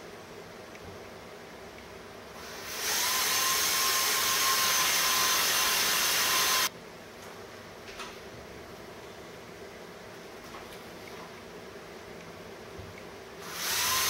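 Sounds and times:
cordless drill whining: 2.4 - 6.7, 13.4 - 14.0.

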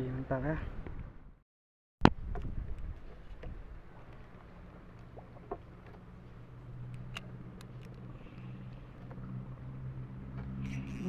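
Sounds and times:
motor humming: 10.4 - 11.0.

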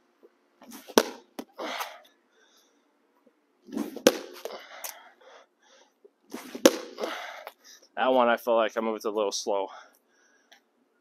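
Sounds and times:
ball smacking concrete wall: 0.7 - 1.9, 3.7 - 5.0, 6.3 - 7.5.

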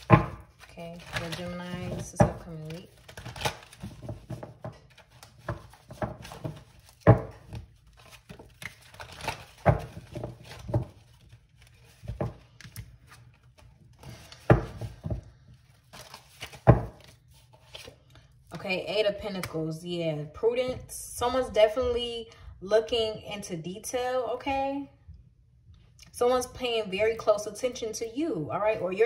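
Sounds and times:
cards being shuffled: 0.0 - 18.3.

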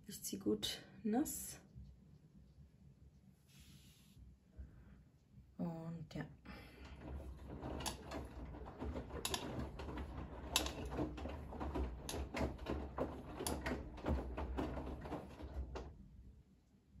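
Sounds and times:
washing machine motor hum: 6.5 - 16.6
laundry sloshing in drum: 6.7 - 16.1
sharp clicks and knocks: 6.9 - 15.9.

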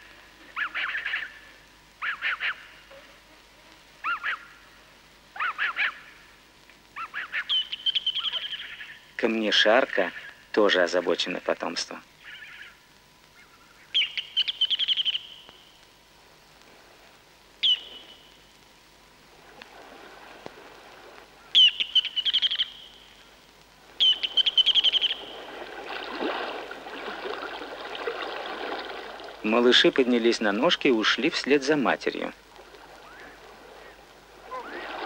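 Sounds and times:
soft steady rushing noise: 8.6 - 35.0.

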